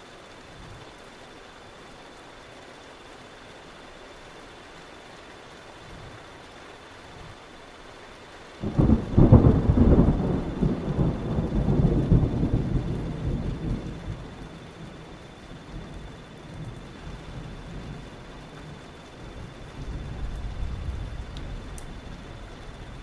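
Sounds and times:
steady rain: 0.0 - 23.0
thunder rumbling: 8.6 - 23.0.

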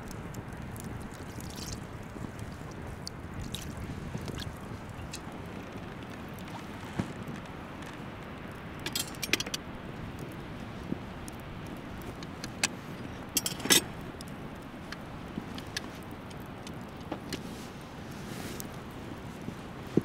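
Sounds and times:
steady low hiss: 0.0 - 20.0
metal handle clinking and rattling: 8.9 - 9.6, 13.4 - 13.9
pot clattering on a grate: 8.9 - 9.6, 13.4 - 13.9.

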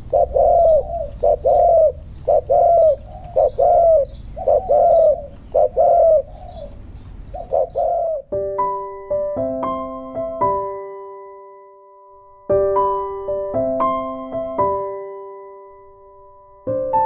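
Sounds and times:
dove cooing: 0.0 - 8.3.

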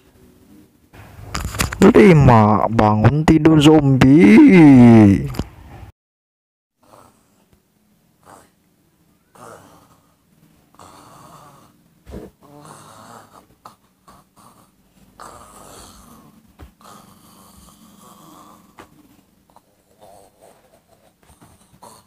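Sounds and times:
man groaning raspily: 1.8 - 5.4.

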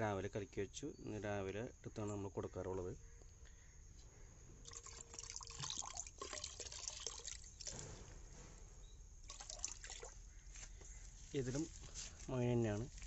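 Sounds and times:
liquid trickling into a bucket: 4.6 - 8.1, 9.2 - 10.6.

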